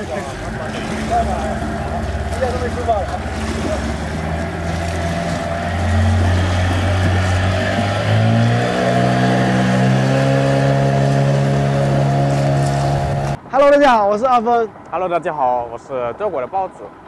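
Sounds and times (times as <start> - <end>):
outboard motor running: 0.0 - 13.4.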